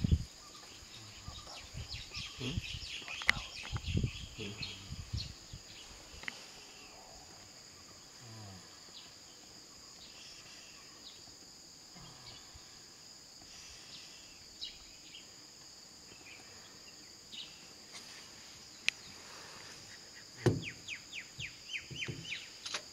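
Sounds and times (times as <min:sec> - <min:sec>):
insect chorus: 0:00.0 - 0:22.9
faint ticks: 0:06.2 - 0:06.4
sharp click: 0:22.6 - 0:22.9.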